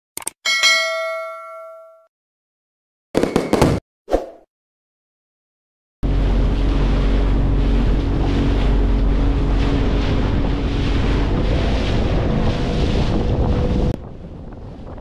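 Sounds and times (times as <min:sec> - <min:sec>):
boat engine droning: 0:06.0 - 0:15.0
water rushing in wake: 0:06.0 - 0:15.0
wind buffeting microphone: 0:06.0 - 0:15.0.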